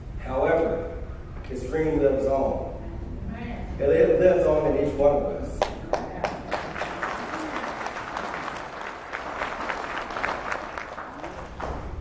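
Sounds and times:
audience applauding: 5.6s - 12.0s.

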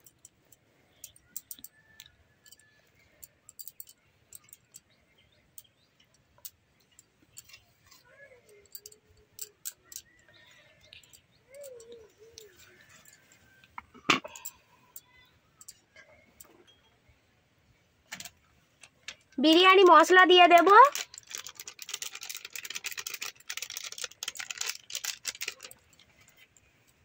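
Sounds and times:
chirps and wavering calls: 7.0s - 13.8s
light clicks and crackles: 18.1s - 27.0s.

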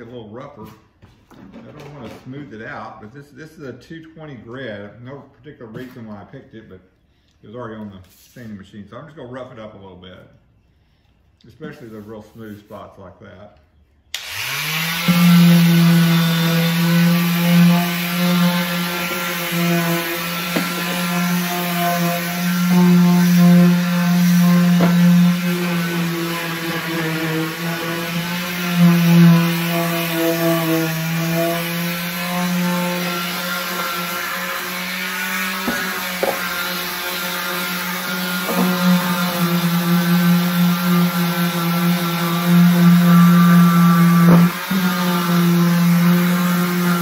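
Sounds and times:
palm sander on plastic: 14.2s - 47.0s.

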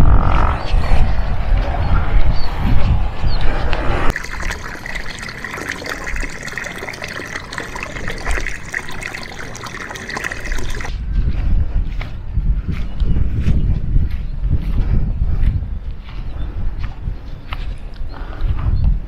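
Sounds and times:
low rumble: 0.0s - 4.1s
water splashing over stones: 4.1s - 10.9s.

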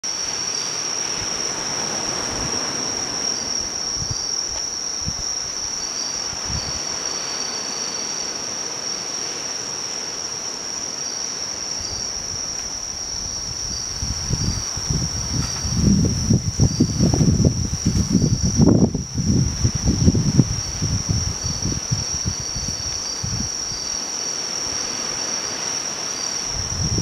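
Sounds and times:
background hiss: 0.0s - 27.0s
night insects chorus: 0.0s - 27.0s
fainter insect trill: 0.1s - 27.0s.

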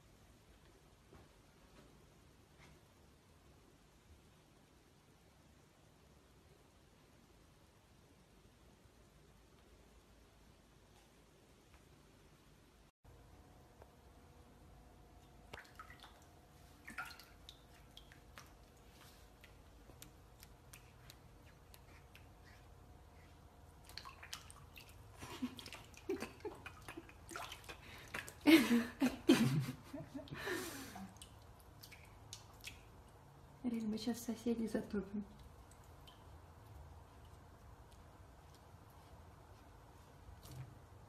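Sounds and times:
cat splashing water in a pot: 15.1s - 41.0s.

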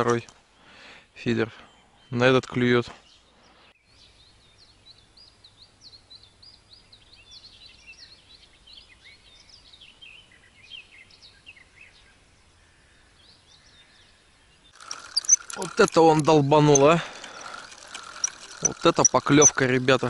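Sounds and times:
faint songbird chirping: 0.1s - 20.0s.

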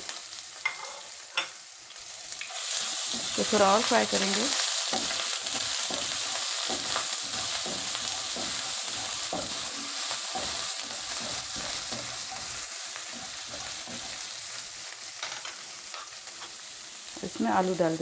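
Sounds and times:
paste sizzling in hot oil: 0.0s - 18.0s
spatula scraping a wok: 2.6s - 16.6s.

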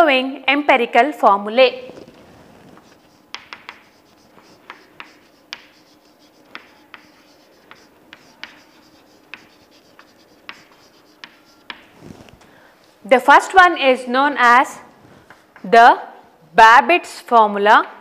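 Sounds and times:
chalk tapping and scraping on board: 2.8s - 12.0s.

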